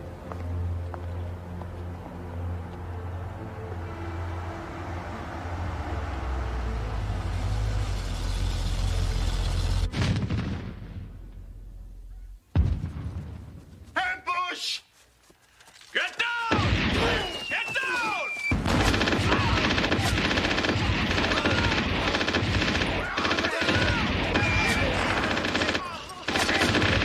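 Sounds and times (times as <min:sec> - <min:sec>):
dramatic film score drone: 0:00.0 - 0:12.4.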